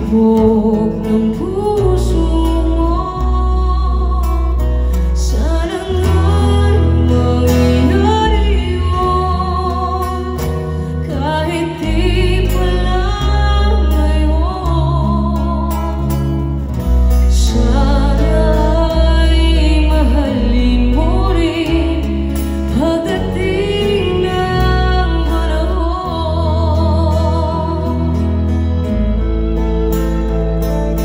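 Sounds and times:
acoustic guitar: 0.0 - 31.0
person singing: 0.0 - 31.0
orchestra playing: 26.7 - 31.0.

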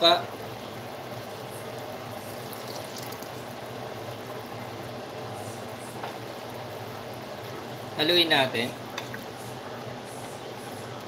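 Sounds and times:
pot simmering with bubbling: 0.0 - 11.0
liquid pouring into a pot: 1.7 - 4.6.

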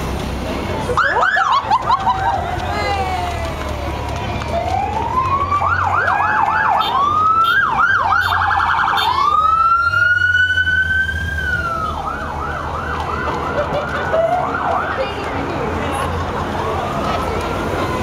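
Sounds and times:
police sirens yelping and wailing: 0.5 - 18.0.

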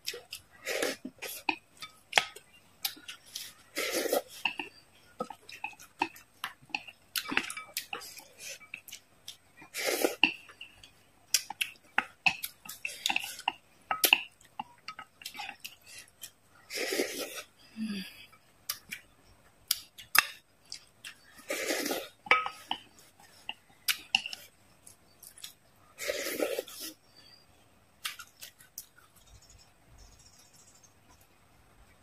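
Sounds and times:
wet chewing and smacking: 0.0 - 9.5, 10.2 - 16.4
slurping broth: 0.6 - 1.6, 3.3 - 4.6, 9.7 - 10.4, 16.6 - 17.5, 21.4 - 22.4, 26.0 - 27.0.

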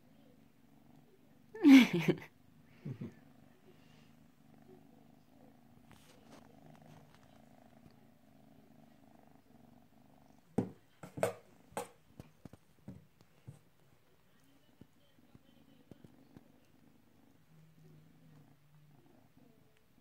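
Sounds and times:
cat purring: 0.0 - 20.0
rustling: 5.7 - 8.0.

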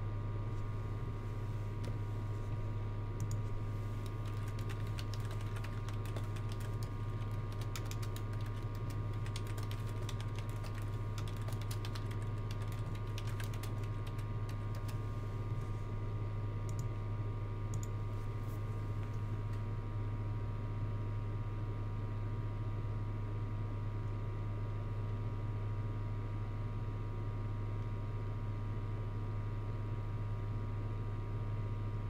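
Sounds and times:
low electrical hum: 0.0 - 32.0
typing on a computer keyboard: 4.0 - 15.0.

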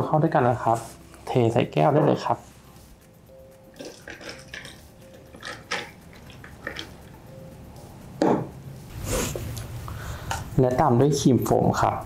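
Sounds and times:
liquid splashing into glass: 3.8 - 6.9
ice clicking against glass: 3.8 - 7.0
knock on glass: 8.2 - 8.5.

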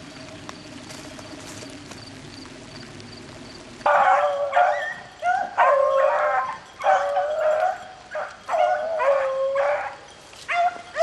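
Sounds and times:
beagles baying: 3.9 - 11.0.

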